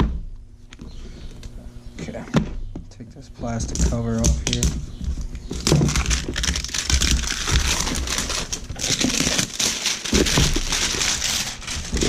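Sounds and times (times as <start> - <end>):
plastic bag crinkling: 5.4 - 12.0.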